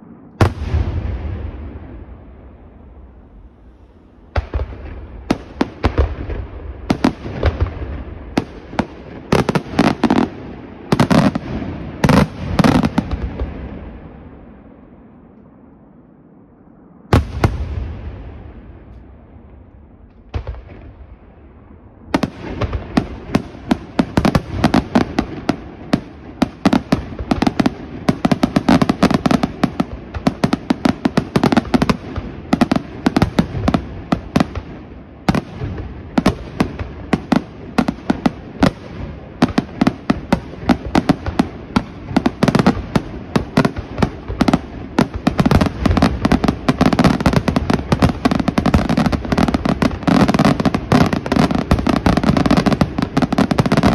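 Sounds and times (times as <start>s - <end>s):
fireworks bangs and crackles: 0.0s - 15.7s, 16.9s - 53.9s.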